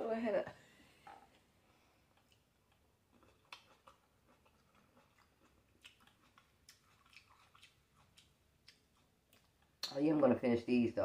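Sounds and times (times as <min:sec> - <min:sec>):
chewing with wet mouth clicks: 0:02.1 - 0:10.1.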